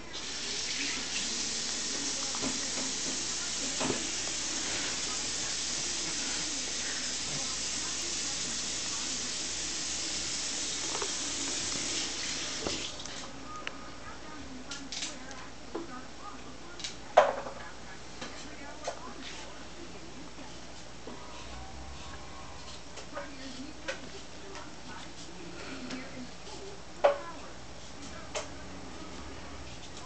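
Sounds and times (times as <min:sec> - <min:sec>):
water running from a tap: 0:00.1 - 0:13.0.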